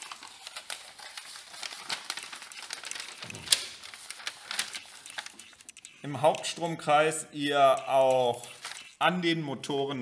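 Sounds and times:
paper rustling and crinkling: 0.0 - 6.6, 7.8 - 9.0
sharp paper crackle: 0.0 - 6.6, 7.7 - 9.0.

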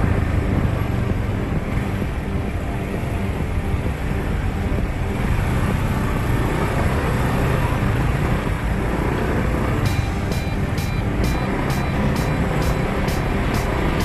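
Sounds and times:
road traffic rumble: 0.0 - 14.0
motorbike engine: 3.4 - 14.0.

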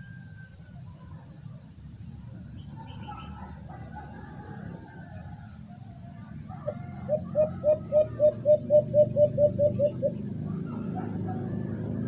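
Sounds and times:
recorded dove call hooting: 6.4 - 11.8.

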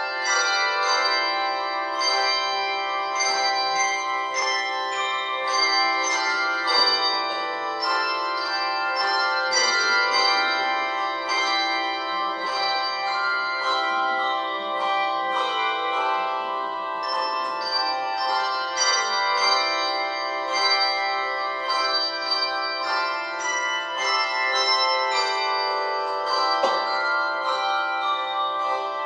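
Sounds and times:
handbells playing a tune: 0.0 - 29.0.

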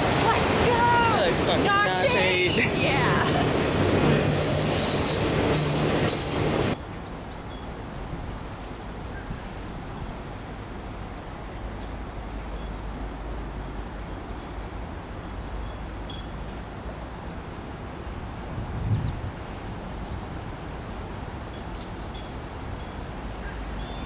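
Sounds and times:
diesel locomotive rumble: 0.0 - 7.0
freight cars rumbling past: 0.0 - 7.2
train wheels squealing: 3.6 - 6.7.

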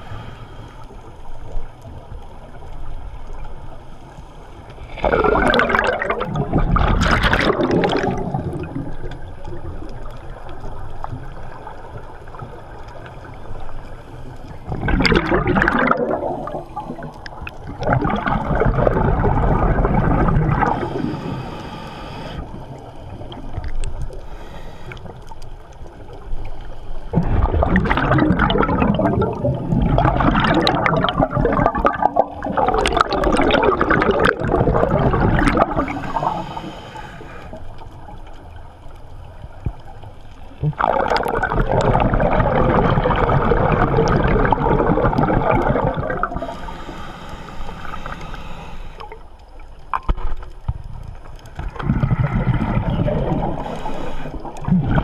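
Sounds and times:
exhaled bubbles gurgling underwater: 0.0 - 55.0
water washing: 4.8 - 13.8, 14.5 - 21.9, 23.0 - 37.9, 39.6 - 49.1.

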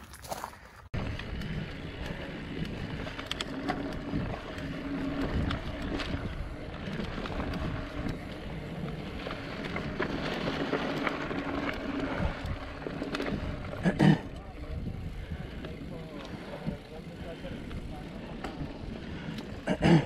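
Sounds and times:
bike clicks and rattles: 0.0 - 20.0
bike tyre and drivetrain noise: 0.0 - 20.0
wind on microphone: 14.6 - 16.0.

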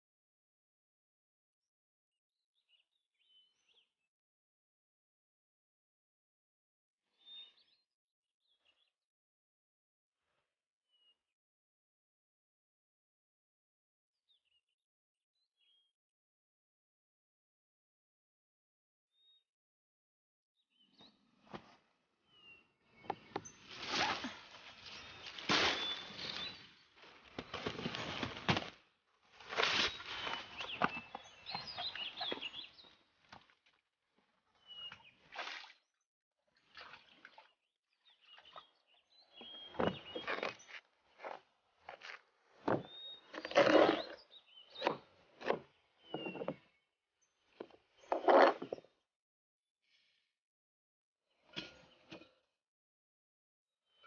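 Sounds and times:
leaves and vines rustling: 23.5 - 32.6
cleaver cutting through watermelon: 25.2 - 26.4, 43.3 - 45.6
knocks and scrapes of slices: 25.2 - 26.4, 39.8 - 44.2
faint bird chirps: 29.9 - 33.0.

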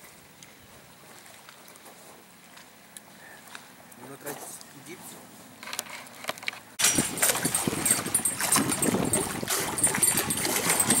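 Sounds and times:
water splashing at shore: 6.8 - 11.0
wind on microphone: 6.8 - 11.0.

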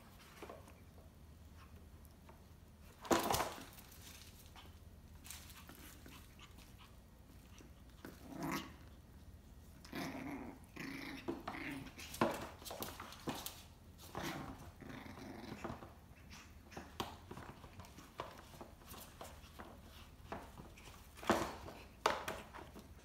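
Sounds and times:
puppy growling: 5.7 - 12.6, 14.1 - 17.5.

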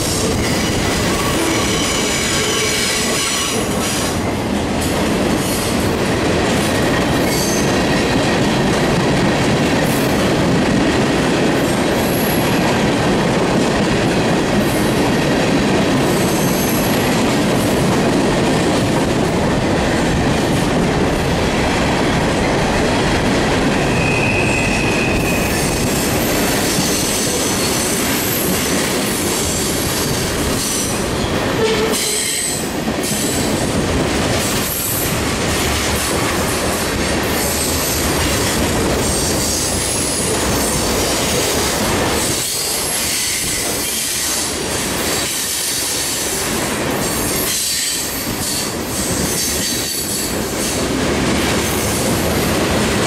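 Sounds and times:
train wheels rolling on rail: 0.0 - 53.0
high-pitched wheel squeals: 23.8 - 25.9.

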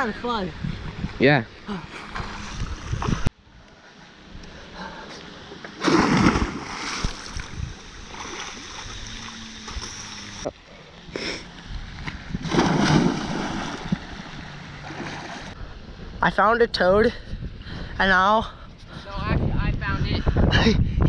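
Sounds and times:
loud splash into water: 5.8 - 7.4, 12.4 - 13.9
swimming splashes: 5.8 - 10.5, 12.4 - 15.6.

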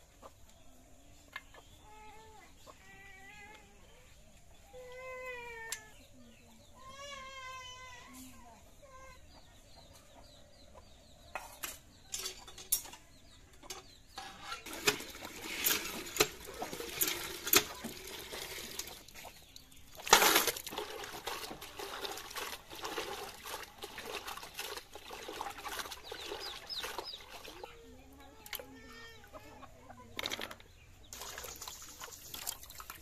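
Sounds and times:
pump handle clanking: 14.2 - 19.0
water gushing into a steel pot: 14.6 - 19.4, 20.0 - 27.8, 31.1 - 33.0.

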